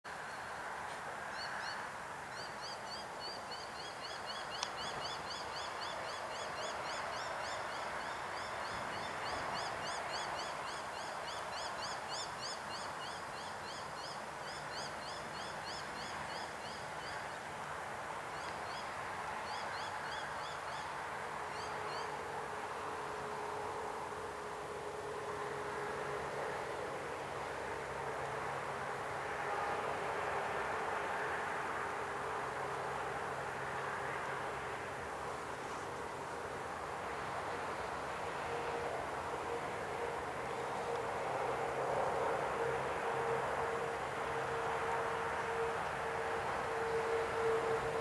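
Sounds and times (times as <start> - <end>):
train rumbling: 36.1 - 48.0.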